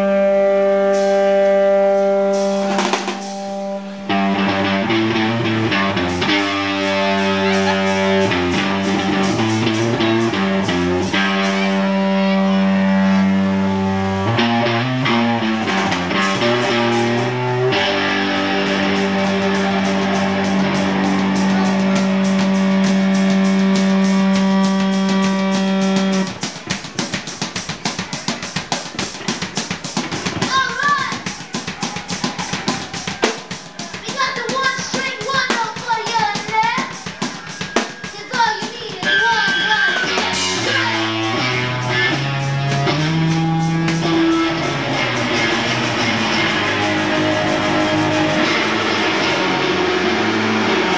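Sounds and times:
electric guitar sustained note: 0.0s - 26.4s, 40.1s - 50.9s
drum kit beat: 0.0s - 50.9s.

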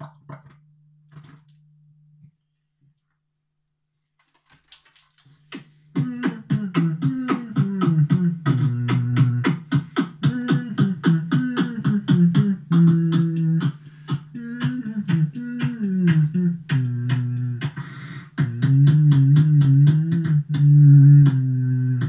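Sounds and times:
beatboxing into microphone: 5.3s - 22.0s.

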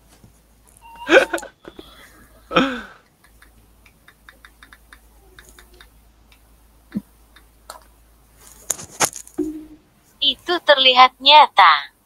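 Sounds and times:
burst of laughter: 1.0s - 1.9s.

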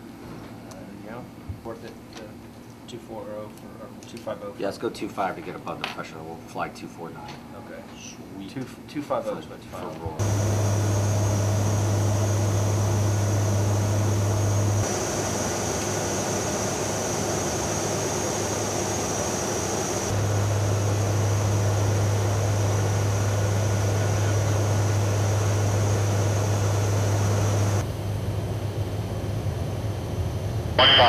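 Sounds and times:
thin high whine: 10.2s - 27.9s, 30.8s - 31.0s
low hum: 10.2s - 31.0s
propeller aircraft drone: 10.2s - 31.0s.

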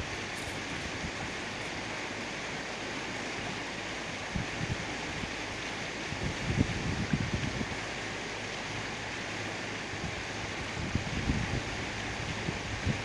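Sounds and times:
wind buffeting microphone: 0.0s - 1.9s, 4.2s - 5.4s, 6.0s - 8.0s, 9.8s - 13.0s.

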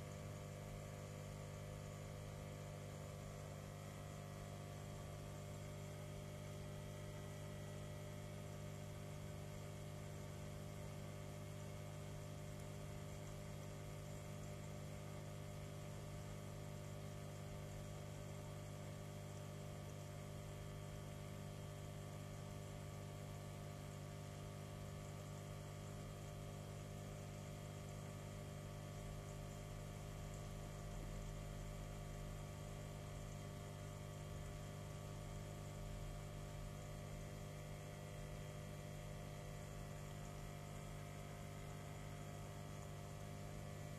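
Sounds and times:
aquarium pump humming: 0.0s - 43.9s.

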